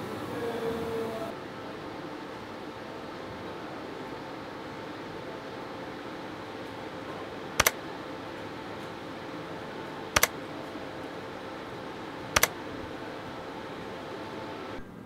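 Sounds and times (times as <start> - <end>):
machine hum: 0.0 - 15.0
sharp double clicks: 7.6 - 7.8, 10.1 - 10.4, 12.3 - 12.6.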